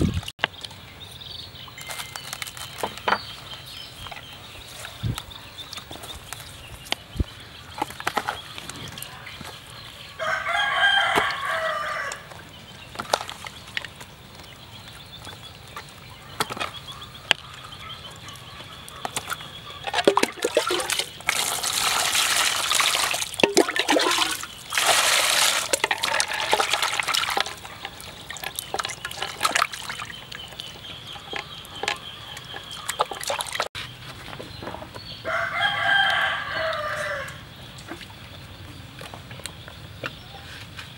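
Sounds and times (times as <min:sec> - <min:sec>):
rooster crowing: 0:10.2 - 0:12.3, 0:35.2 - 0:37.4
water pouring and splashing: 0:19.2 - 0:33.8.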